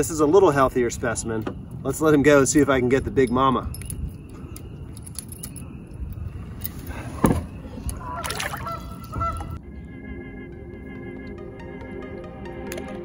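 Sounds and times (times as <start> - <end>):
water sloshing: 6.4 - 9.6
fish splashing into water: 8.1 - 9.1
background music: 9.6 - 13.0.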